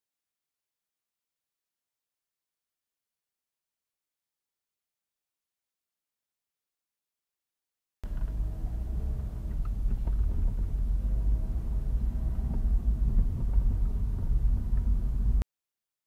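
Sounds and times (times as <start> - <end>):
car engine and road rumble: 8.0 - 15.4.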